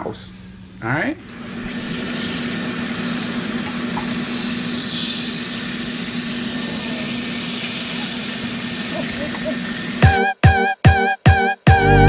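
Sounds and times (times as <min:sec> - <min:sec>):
fish frying in hot oil: 0:01.3 - 0:10.0.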